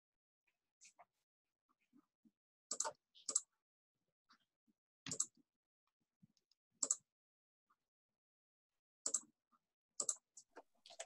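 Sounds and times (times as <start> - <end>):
computer mouse clicks: 2.7 - 3.5, 5.1 - 5.3, 6.8 - 7.0, 9.1 - 9.3, 10.0 - 10.2.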